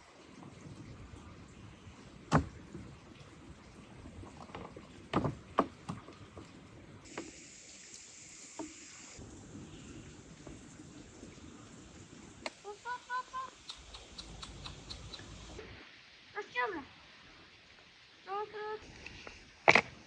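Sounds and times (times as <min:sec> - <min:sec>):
steady hiss: 0:07.0 - 0:20.0.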